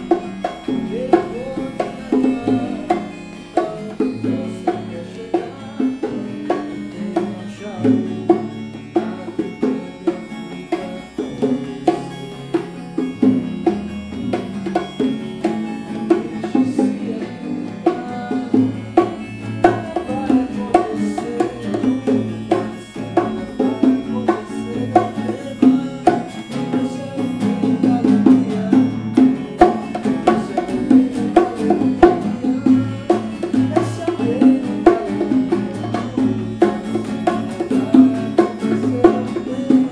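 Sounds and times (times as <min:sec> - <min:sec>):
acoustic guitars picked and strummed: 0:00.0 - 0:39.9
hand drums: 0:00.0 - 0:39.9
keyboard: 0:00.0 - 0:39.9.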